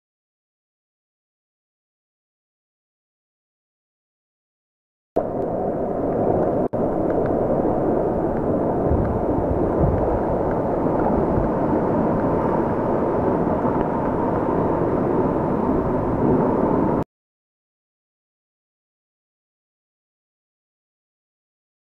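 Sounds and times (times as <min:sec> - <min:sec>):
sea surge against rock: 0:06.0 - 0:17.0.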